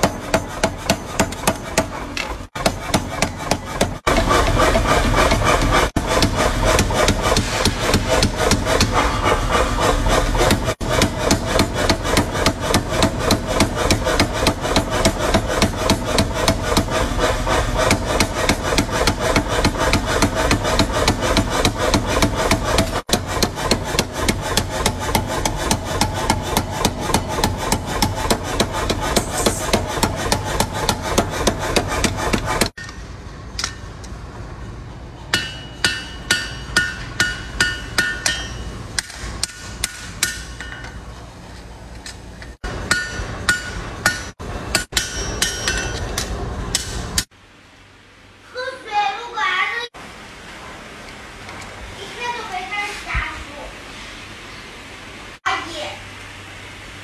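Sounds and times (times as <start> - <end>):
power hammer pounding steel: 0.0 - 33.1, 35.3 - 41.0, 42.6 - 47.3.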